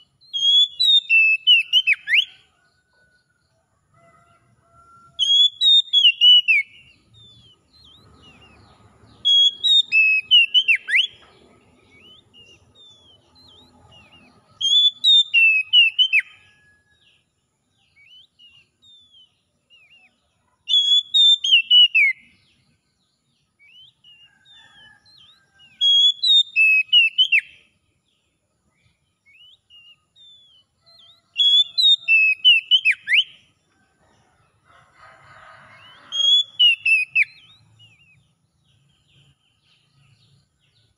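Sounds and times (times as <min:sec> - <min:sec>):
soft bird chirps: 0:00.0 - 0:40.9
bird singing whistled phrases: 0:00.2 - 0:02.4, 0:05.2 - 0:08.5, 0:09.2 - 0:11.2, 0:11.9 - 0:16.6, 0:18.0 - 0:20.1, 0:20.7 - 0:22.2, 0:25.2 - 0:27.6, 0:31.4 - 0:33.4, 0:35.8 - 0:38.2.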